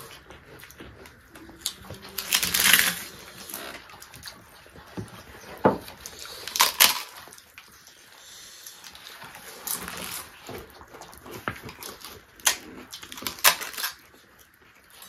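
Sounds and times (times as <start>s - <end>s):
chewing and lip smacks: 0.0s - 15.0s
loud crackly noise: 1.6s - 4.4s.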